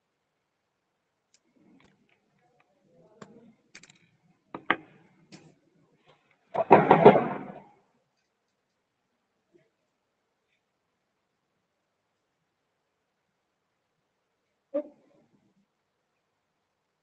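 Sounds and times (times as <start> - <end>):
drawing instruments clicking: 3.7 - 5.5.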